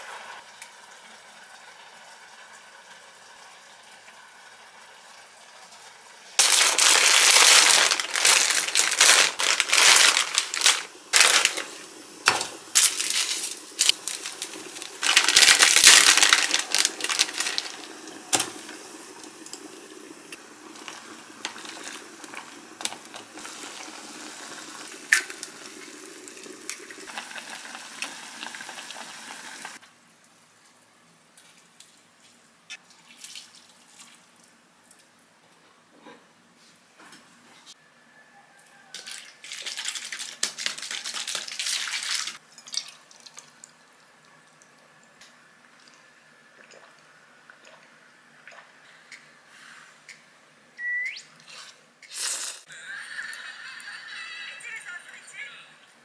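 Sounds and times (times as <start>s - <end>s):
packets tearing open: 6.4s - 11.8s, 12.8s - 18.4s
plastic packaging rustling and crinkling: 6.4s - 18.6s, 39.1s - 42.4s.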